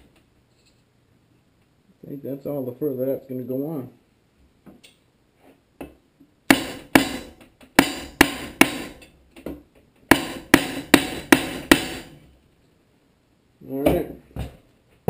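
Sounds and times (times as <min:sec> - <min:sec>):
hammer knocking on wooden board: 0:06.5 - 0:08.9, 0:10.1 - 0:12.1.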